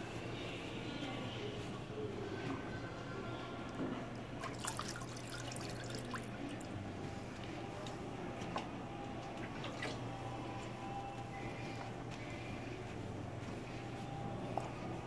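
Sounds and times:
steady low hum: 0.0 - 15.0
wax stirred in metal vats: 0.0 - 15.0.

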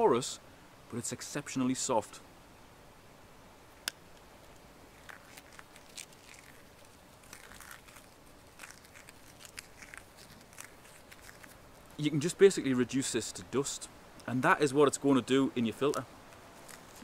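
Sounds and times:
gritty crackling of crumbling media: 4.9 - 12.0.

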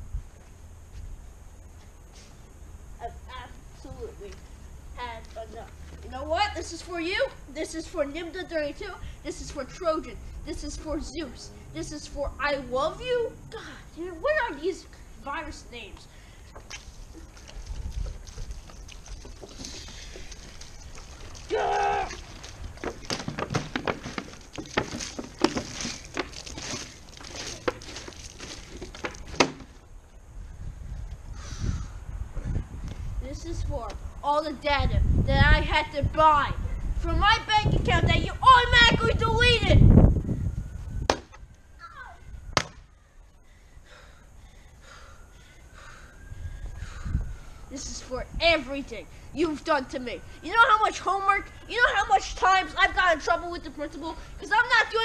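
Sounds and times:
person yelling: 21.4 - 22.3.

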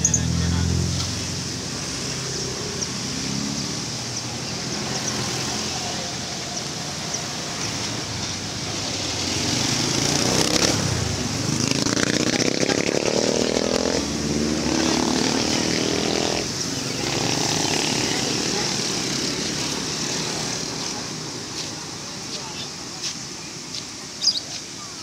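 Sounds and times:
motorbike engine revving: 0.0 - 21.6
street traffic noise: 0.0 - 25.0.

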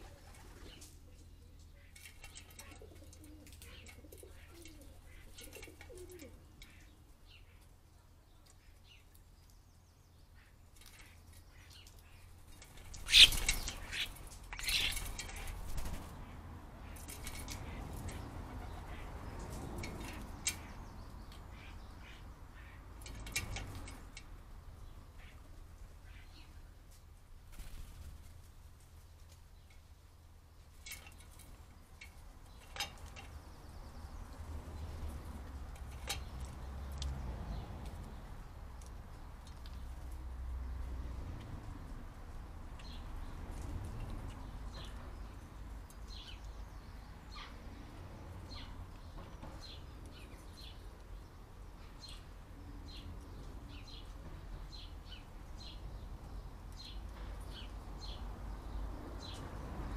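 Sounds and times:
bird wings fluttering: 12.6 - 16.2, 27.5 - 28.5.

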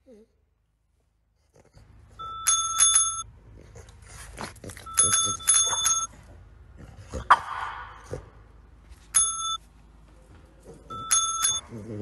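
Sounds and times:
desk bell dinging: 9.2 - 9.6, 11.0 - 11.6.

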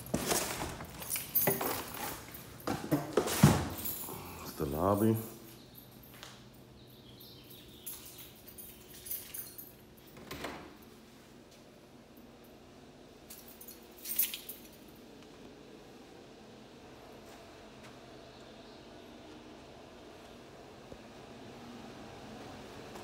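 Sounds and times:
keys jangling: 0.8 - 10.8, 13.3 - 15.0.

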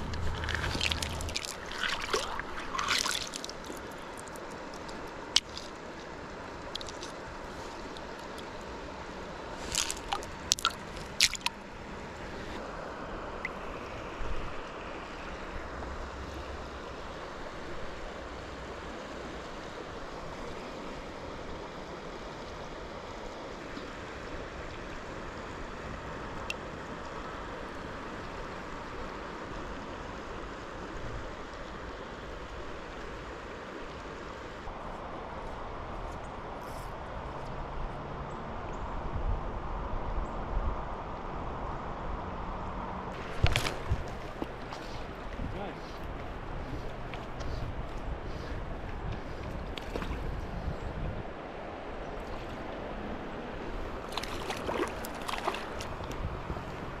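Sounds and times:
hands sloshing in water: 0.0 - 3.9, 9.6 - 11.6, 43.2 - 46.0, 54.0 - 56.2
river water running over cobbles: 0.0 - 38.2, 43.0 - 57.0.

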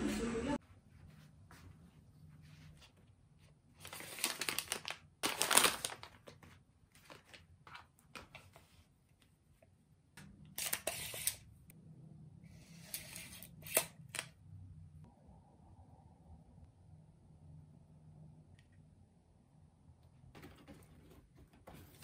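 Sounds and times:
packaging crinkling: 3.8 - 6.4.

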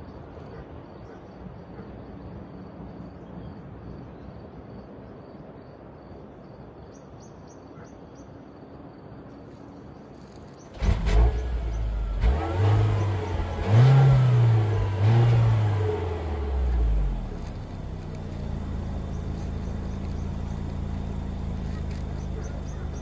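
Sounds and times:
car engine starting and revving: 10.7 - 23.0.

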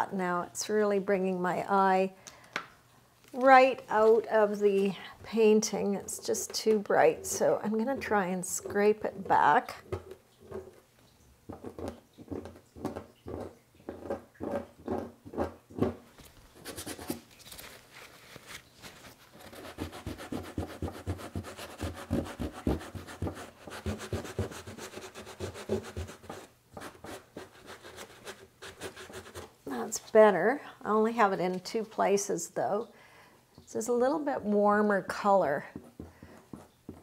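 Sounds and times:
plastic scraper scraping paint: 5.6 - 10.8, 11.5 - 16.0, 18.9 - 29.6
rubbing on paint surface: 16.5 - 29.6.

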